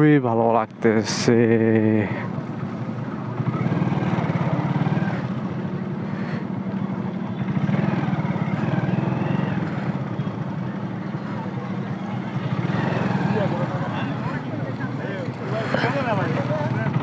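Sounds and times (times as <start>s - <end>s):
motorcycle engine running: 1.7s - 17.0s.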